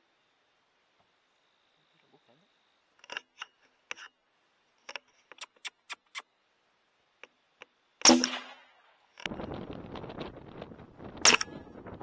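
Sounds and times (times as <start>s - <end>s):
loud rifle shot: 8.0s - 8.7s.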